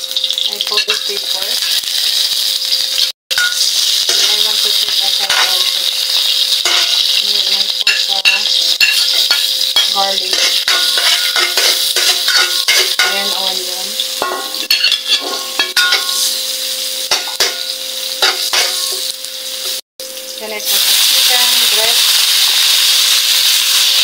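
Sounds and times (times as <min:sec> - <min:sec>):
vegetables sizzling in hot oil: 0:00.0 - 0:24.0
metal spatula scraping a wok: 0:03.7 - 0:16.4.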